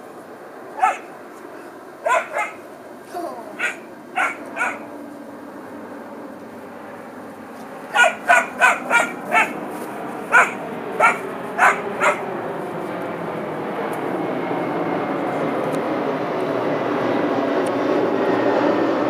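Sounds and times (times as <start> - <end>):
puppy yapping: 0.8 - 4.9, 7.8 - 9.6, 10.2 - 12.3.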